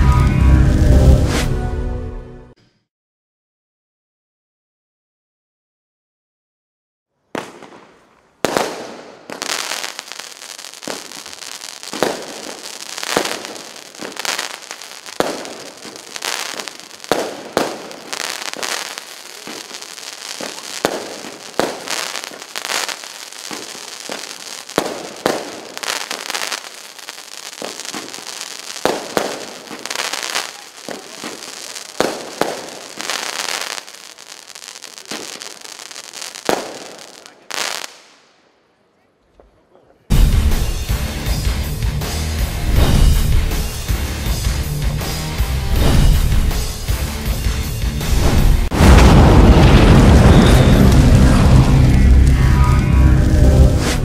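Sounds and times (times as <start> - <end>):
firework bangs: 7.3 - 38.5, 42.6 - 54.0
firework crackling: 7.3 - 38.5, 40.1 - 54.0.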